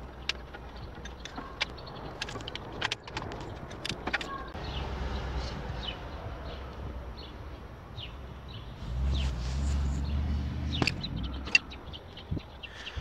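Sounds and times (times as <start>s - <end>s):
wrench on bolts: 0.0s - 4.5s
sharp metallic clicks: 0.0s - 4.6s, 10.6s - 12.5s
birds chirping: 0.0s - 13.0s.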